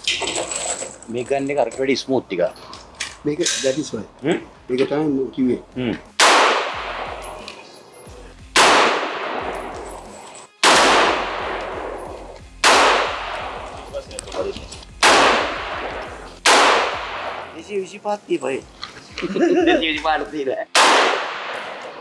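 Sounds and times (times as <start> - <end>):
rifle shots with echo: 6.2 - 7.4, 8.5 - 9.8, 10.6 - 13.9, 15.0 - 17.6, 20.7 - 22.0.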